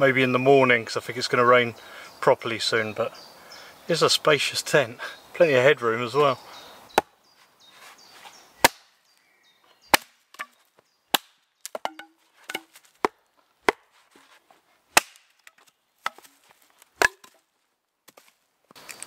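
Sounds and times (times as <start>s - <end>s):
wood chopping strikes: 6.9s - 7.1s, 8.6s - 8.9s, 9.9s - 14.0s, 14.9s - 17.4s
wood knocking and clattering: 11.7s - 13.8s.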